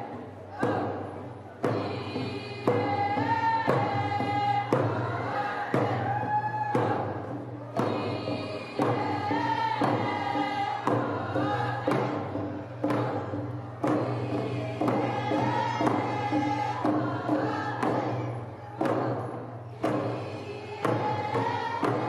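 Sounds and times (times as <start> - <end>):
frame drums beating: 0.0 - 22.0
group of voices singing: 0.0 - 22.0.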